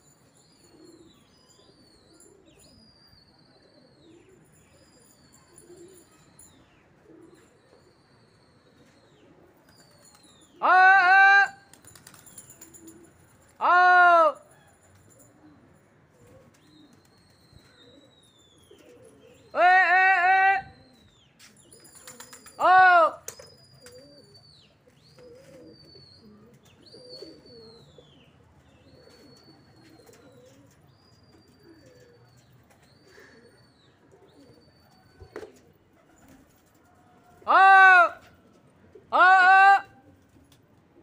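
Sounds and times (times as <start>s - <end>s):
person calling loudly: 10.6s - 11.6s, 13.6s - 14.4s, 19.6s - 20.8s, 22.6s - 23.2s, 37.5s - 38.2s, 39.1s - 39.9s
faint high bird chirps: 16.6s - 19.6s, 23.3s - 35.4s.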